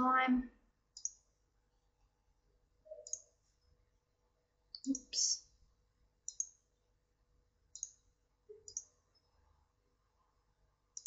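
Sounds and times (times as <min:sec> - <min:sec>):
mouse buttons clicking: 0:00.9 - 0:01.3, 0:02.9 - 0:03.4, 0:04.7 - 0:05.4, 0:06.2 - 0:06.6, 0:07.7 - 0:09.3.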